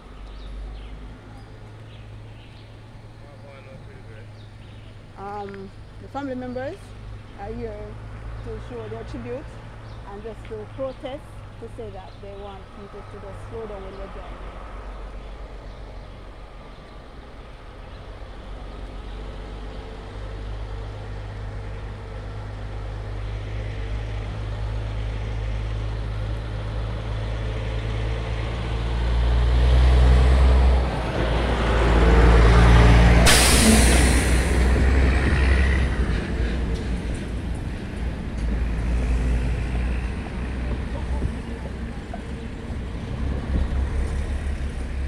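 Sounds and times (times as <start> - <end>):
large vehicle engine rumble: 0.0 - 45.0
sharp hiss: 33.2 - 34.7.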